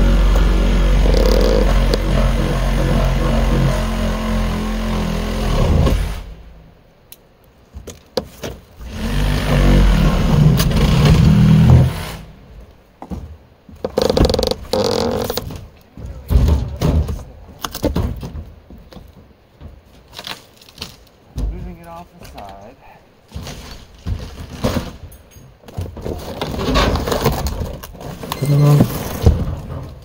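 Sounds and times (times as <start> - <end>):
grinding creak of wood: 0.0 - 6.5, 7.9 - 12.4, 13.0 - 21.2, 23.3 - 30.0
scrapes: 8.2 - 30.0
sharp thuds and knocks: 13.0 - 21.9, 23.3 - 28.2, 28.8 - 30.0.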